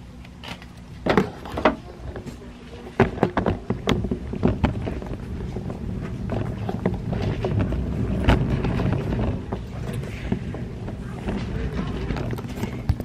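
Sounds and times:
low rumble: 0.9 - 13.0.

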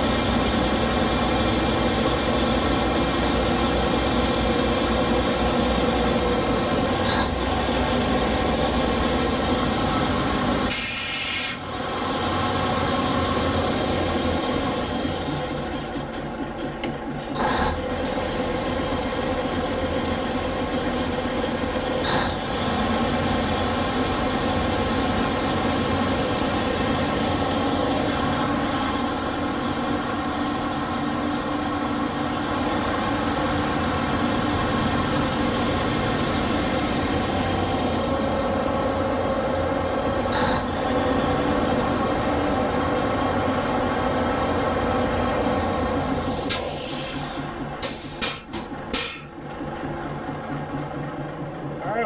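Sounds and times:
crane machinery drone: 0.0 - 52.0.

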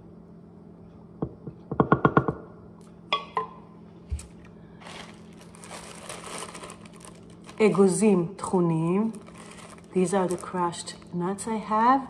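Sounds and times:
plastic bag crinkling: 4.7 - 11.5.

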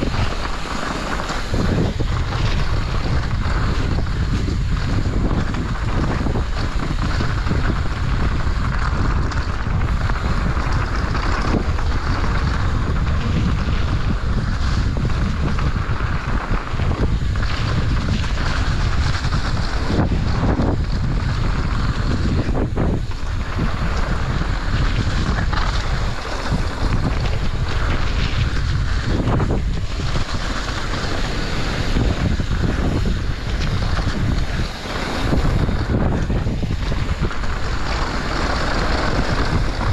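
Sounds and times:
tyres rolling over dirt: 0.0 - 39.9
wind rushing over microphone: 0.0 - 39.9.

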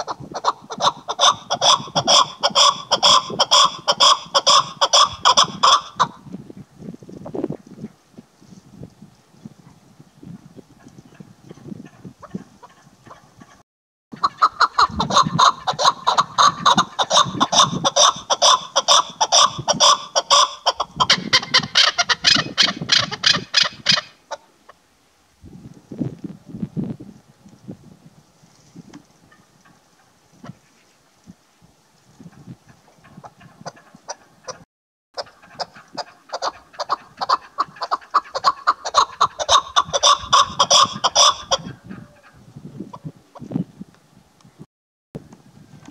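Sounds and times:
partridge clucking calls: 0.0 - 6.2, 10.8 - 24.8, 32.3 - 34.6, 35.2 - 43.5.

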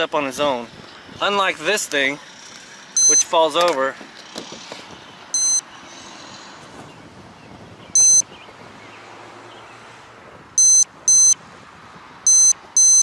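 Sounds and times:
high-pitched electronic beeps: 3.0 - 3.3, 5.3 - 5.7, 8.0 - 8.3, 10.6 - 11.4, 12.3 - 13.0.

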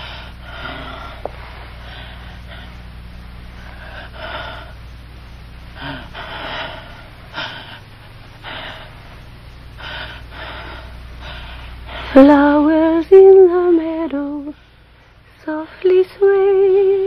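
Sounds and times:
man breathing heavily: 0.0 - 12.2.

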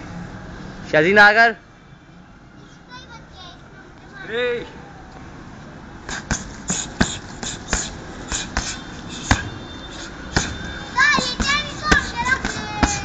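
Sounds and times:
punches and kicks on heavy bag: 6.1 - 9.6, 10.3 - 13.0.

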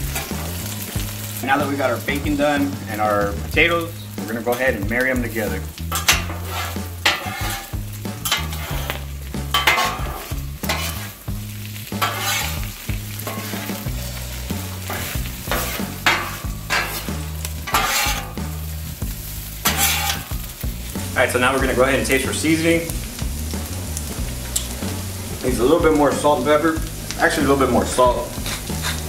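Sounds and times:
food sizzling in grease: 0.0 - 29.0
metal spatulas scraping on griddle: 0.1 - 0.8, 4.4 - 20.6, 27.7 - 29.0.

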